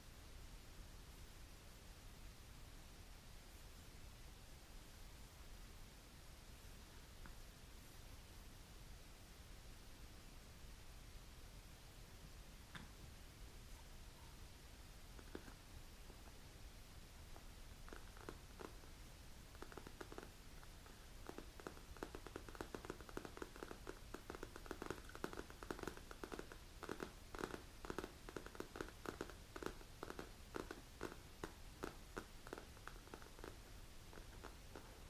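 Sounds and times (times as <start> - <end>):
fingernails tapping on leather: 21.2 - 34.9.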